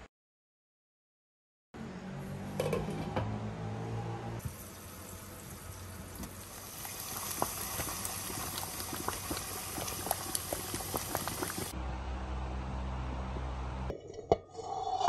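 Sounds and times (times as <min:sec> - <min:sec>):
thick mixture bubbling and popping: 0:06.2 - 0:11.7.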